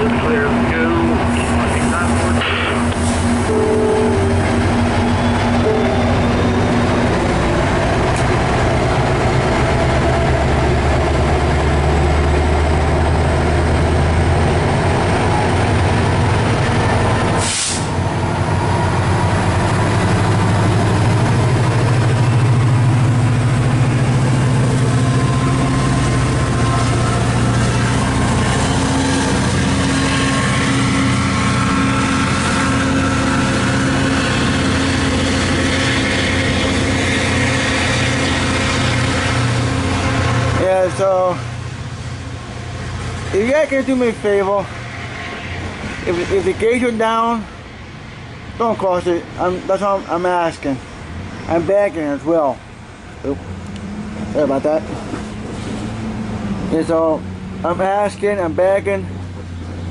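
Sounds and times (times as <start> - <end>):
locomotive diesel engine drone: 0.0 - 59.9.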